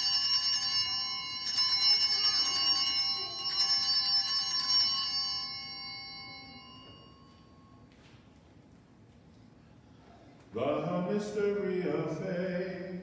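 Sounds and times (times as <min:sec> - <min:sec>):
altar bells ringing: 0:00.0 - 0:07.9.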